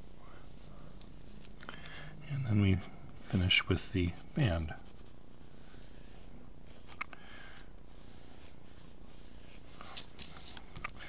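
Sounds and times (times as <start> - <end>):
faint room hum: 0.0 - 11.0
pencil scratching on paper: 3.8 - 7.0, 7.9 - 10.6.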